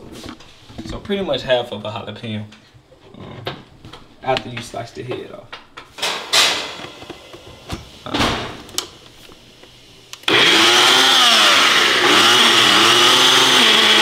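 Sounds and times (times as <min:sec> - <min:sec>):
blender motor running: 0:10.2 - 0:14.0.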